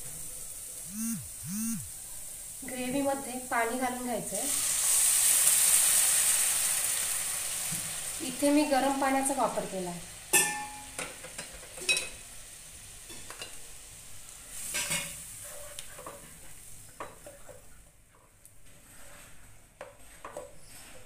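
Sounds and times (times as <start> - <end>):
gravy sizzling: 0.0 - 17.9
spatula scraping and knocking a pan: 18.8 - 21.0.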